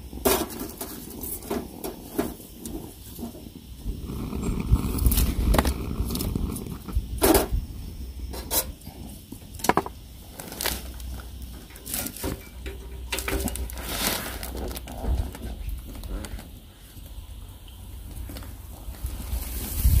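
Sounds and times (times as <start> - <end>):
wind rumble on microphone: 1.1 - 9.2, 18.0 - 20.0.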